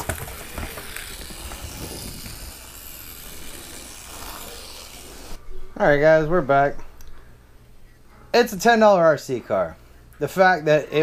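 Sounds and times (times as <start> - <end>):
toy truck motor whirring: 0.0 - 5.4.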